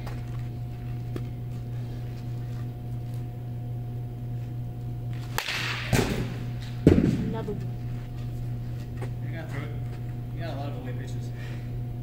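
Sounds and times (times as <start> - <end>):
steady low hum: 0.0 - 12.0
bat whoosh and crack on ball: 5.2 - 7.2.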